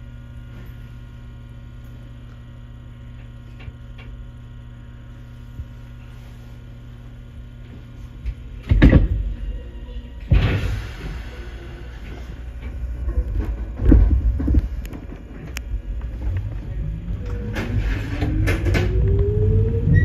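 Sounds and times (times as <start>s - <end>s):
electric train electrical hum: 0.0s - 20.0s
loud sudden noise: 10.3s - 12.0s.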